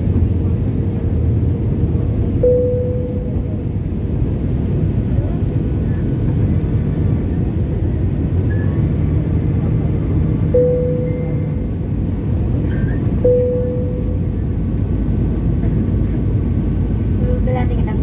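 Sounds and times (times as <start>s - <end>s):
airplane cabin noise: 0.0s - 18.0s
short ringing tones: 2.4s - 3.4s, 10.5s - 11.6s, 13.2s - 14.3s.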